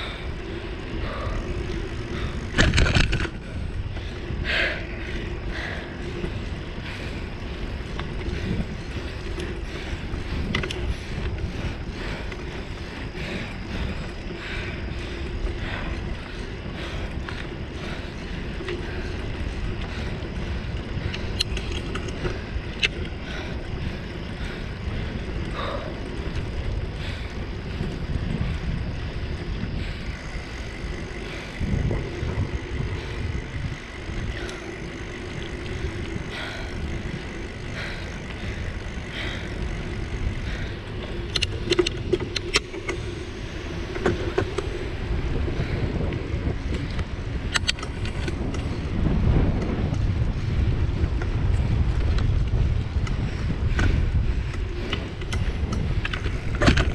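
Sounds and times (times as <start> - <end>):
bicycle tyres rumbling on asphalt: 0.0 - 56.9
sharp ticks: 0.0 - 56.9
wind on microphone: 0.0 - 56.9.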